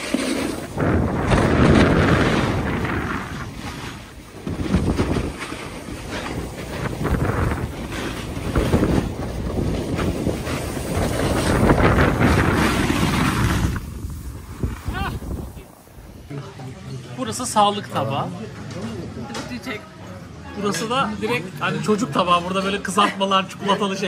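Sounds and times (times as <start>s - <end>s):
ski edges scraping packed snow: 0.0s - 16.2s
wind buffeting microphone: 0.0s - 16.3s.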